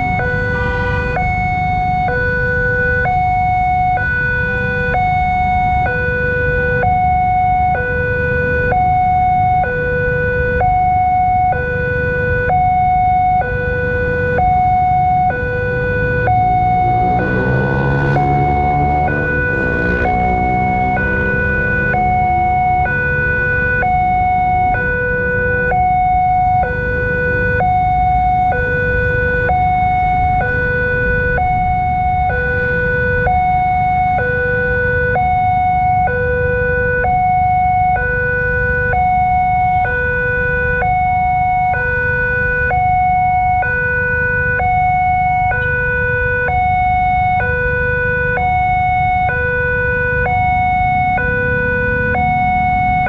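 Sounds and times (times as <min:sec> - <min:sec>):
two-tone level crossing alarm: 0:00.0 - 0:53.0.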